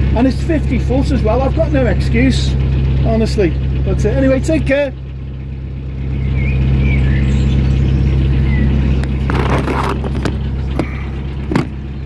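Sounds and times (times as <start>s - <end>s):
boat engine humming: 0.0s - 12.0s.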